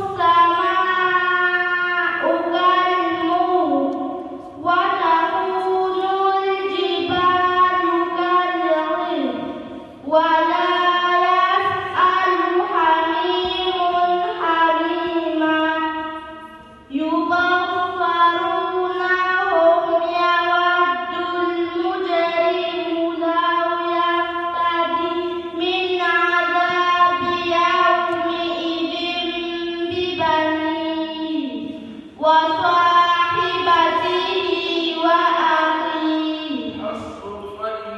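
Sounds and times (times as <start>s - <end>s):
person chanting recitation: 10.1s - 37.9s.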